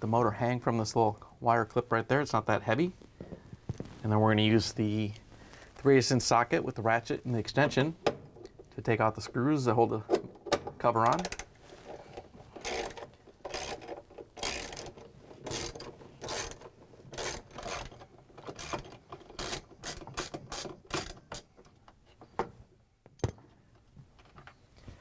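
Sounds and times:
hand ratchet clicking: 0:12.6 - 0:21.5.

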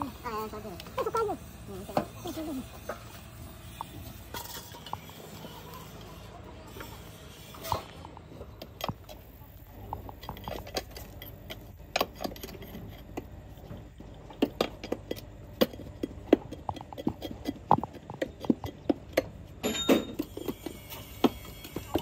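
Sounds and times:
metal scraping: 0:00.0 - 0:14.0.

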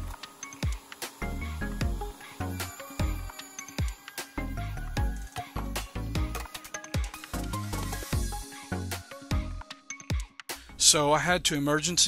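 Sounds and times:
electronic music with deep bass: 0:00.0 - 0:09.6.

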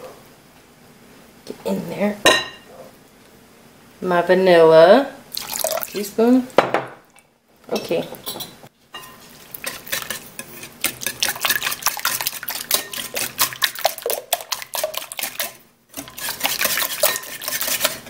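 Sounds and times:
whisk clicking against bowl: 0:09.6 - 0:18.0.

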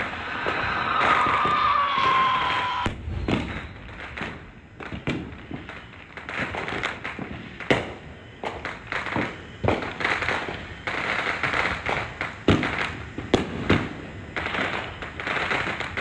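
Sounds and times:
firework falling whistle: 0:00.0 - 0:16.0
fireworks booms and pops: 0:00.0 - 0:16.0.

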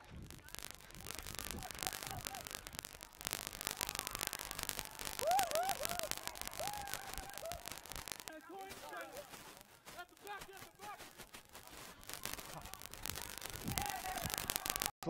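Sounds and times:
spectators hooting: 0:00.0 - 0:14.9
stadium crowd cheering: 0:03.5 - 0:15.0.

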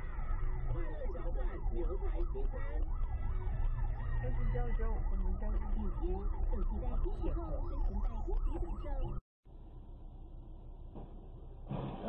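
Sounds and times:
siren warbling: 0:00.0 - 0:09.2
road and engine rumble: 0:00.0 - 0:12.0.

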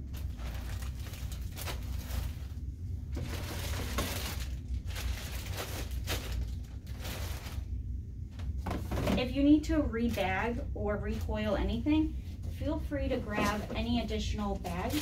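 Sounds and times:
plastic bags crinkling: 0:00.0 - 0:07.8, 0:13.3 - 0:15.0
steady low hum: 0:00.0 - 0:15.0.

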